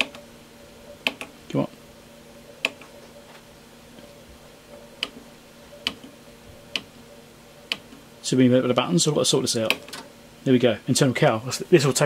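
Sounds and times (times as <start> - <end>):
push buttons clicking: 0.0 - 0.2, 1.0 - 1.4, 2.6 - 2.9, 5.8 - 6.1, 7.7 - 8.0
faint steady hum: 0.0 - 12.0.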